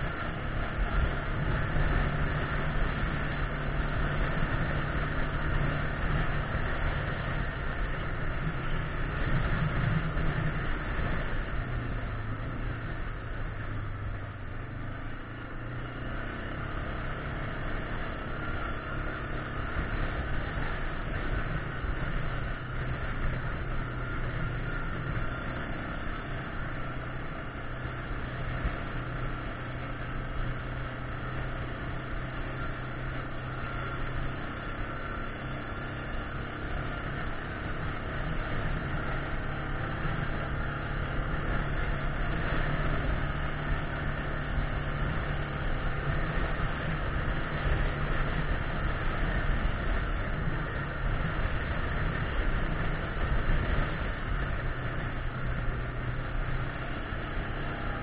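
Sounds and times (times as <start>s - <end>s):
wind noise: 0.0s - 14.3s, 37.3s - 58.0s
atv engine running: 0.0s - 58.0s.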